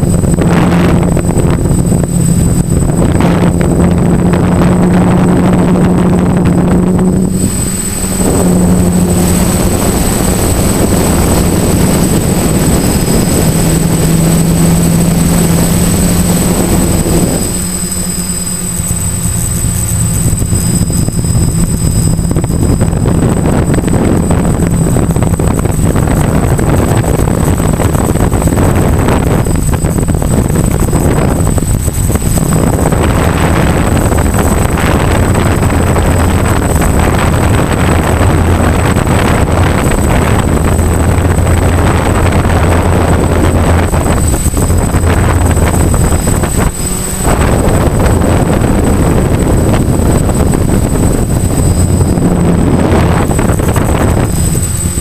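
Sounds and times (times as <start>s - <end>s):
air rushing over microphone: 0.0s - 55.0s
drone motors humming and whining: 0.0s - 55.0s.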